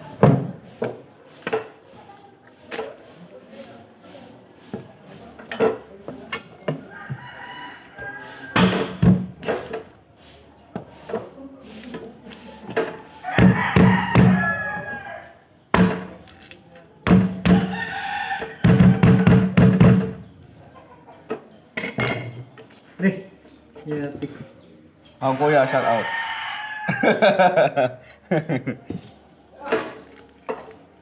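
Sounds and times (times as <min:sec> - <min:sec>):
rooster crowing: 0:06.8 - 0:09.0, 0:13.1 - 0:15.4, 0:17.5 - 0:19.3, 0:25.6 - 0:27.3.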